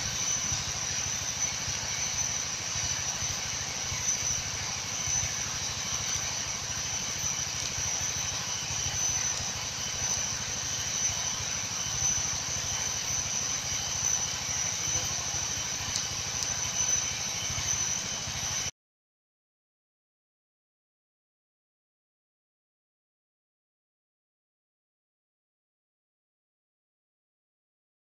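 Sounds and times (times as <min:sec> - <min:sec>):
high-pitched insect drone: 0:00.0 - 0:18.7.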